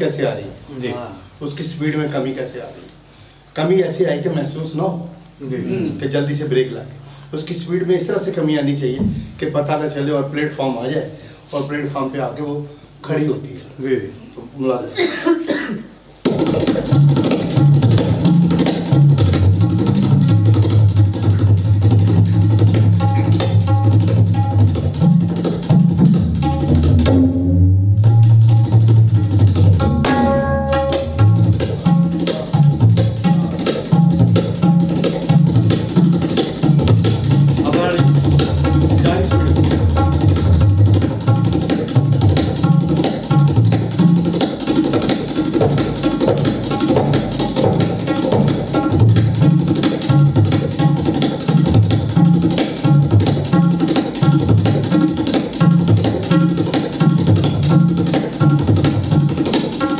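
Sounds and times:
fast tabla strokes: 16.1 - 59.9
sliding bass drum notes: 16.3 - 59.9.

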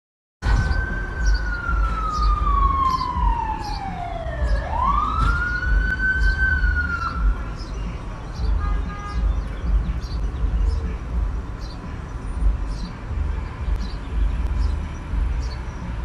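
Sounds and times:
street traffic rumble: 0.4 - 16.0
faint voices: 5.6 - 13.5.

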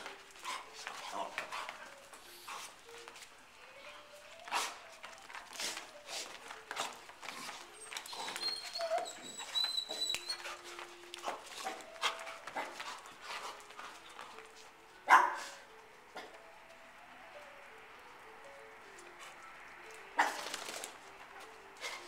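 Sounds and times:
paw clicks: 0.0 - 16.8, 18.4 - 22.0
dogs scuffling: 0.0 - 22.0
dog whimpers: 7.3 - 12.8.

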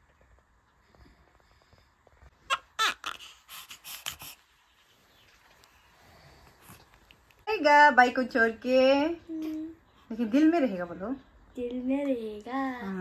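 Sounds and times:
newborn baby crying: 2.4 - 4.4.

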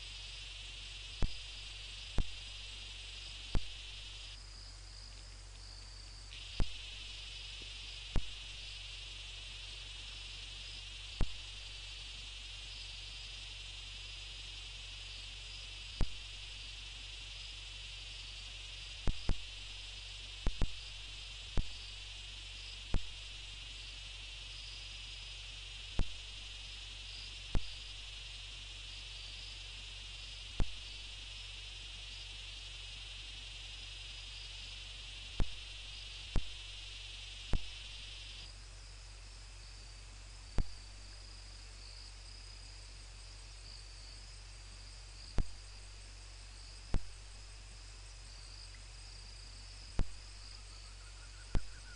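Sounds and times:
crickets trilling: 0.0 - 51.9
steady low hum: 0.0 - 51.9
sharp loud clicks: 20.4 - 21.9, 49.9 - 50.3.

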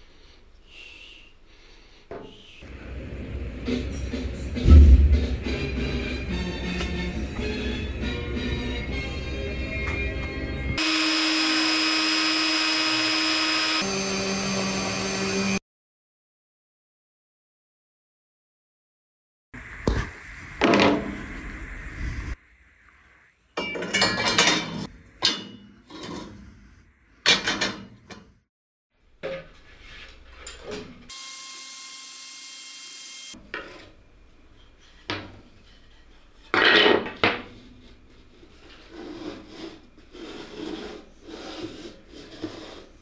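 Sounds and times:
loud scrape: 38.6 - 43.0.

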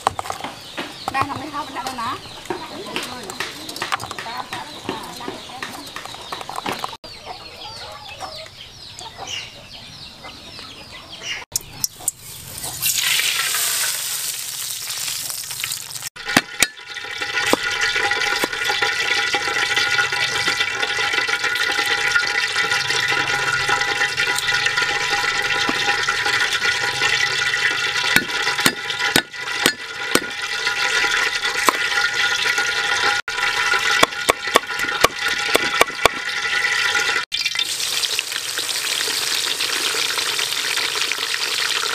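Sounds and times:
cleaver chopping on wooden board: 34.0 - 36.2.

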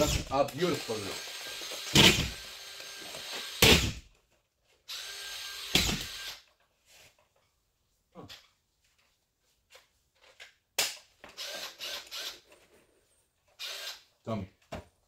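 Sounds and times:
screw gun motor whirring: 0.0 - 4.0, 4.9 - 6.5, 11.3 - 12.5, 13.5 - 14.1.

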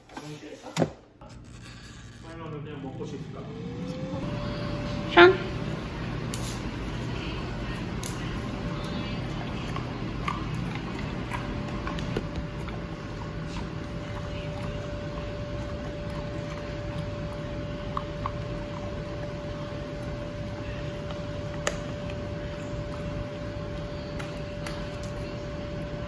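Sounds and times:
steady hum: 1.2 - 26.0
dog chewing a treat: 6.0 - 26.0.

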